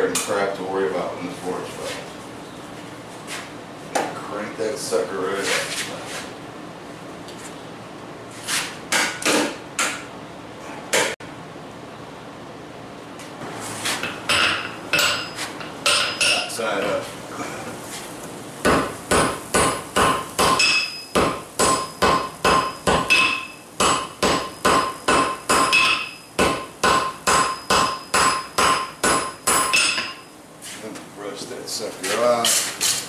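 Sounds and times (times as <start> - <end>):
hammer ringing on anvil: 14.3 - 16.5, 19.2 - 30.3.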